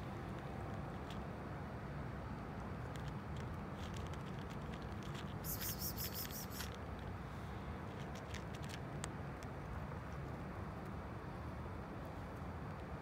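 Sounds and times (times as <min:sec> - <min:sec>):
cat crunching dry kibble: 0:02.8 - 0:07.1, 0:07.9 - 0:10.2.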